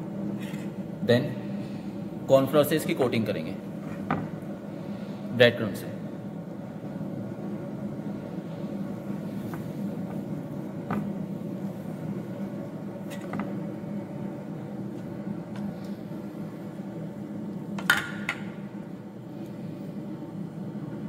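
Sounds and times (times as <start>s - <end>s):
low background hum: 0.0s - 21.0s.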